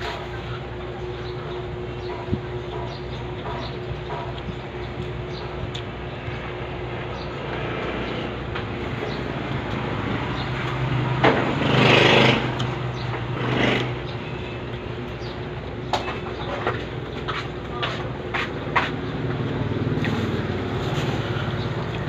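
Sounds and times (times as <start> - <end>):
background traffic drone: 0.0 - 22.0
vehicle passing: 6.7 - 14.5, 18.4 - 22.0.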